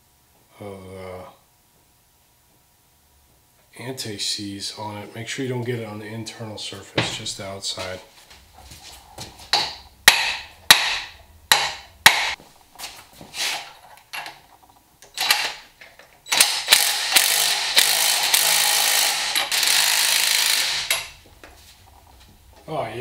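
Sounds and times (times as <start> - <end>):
impact driver hammering: 9.6 - 12.4, 16.3 - 21.1.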